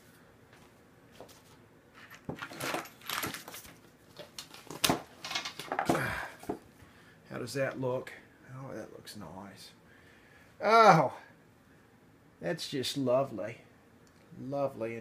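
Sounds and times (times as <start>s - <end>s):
wooden board set down on workbench: 4.8s - 6.6s.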